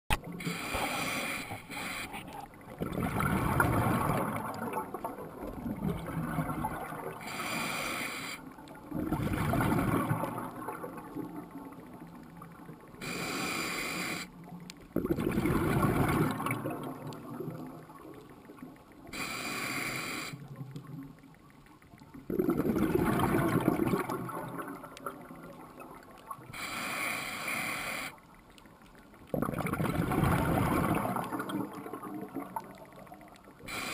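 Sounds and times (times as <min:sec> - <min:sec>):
exhaled bubbles rumbling: 0:00.1 - 0:07.3, 0:08.7 - 0:13.0, 0:14.9 - 0:19.0, 0:20.4 - 0:26.5, 0:29.2 - 0:33.6
regulator inhale hiss: 0:00.4 - 0:02.4, 0:07.2 - 0:08.4, 0:13.0 - 0:14.3, 0:19.1 - 0:20.5, 0:26.5 - 0:28.2, 0:33.6 - 0:33.9.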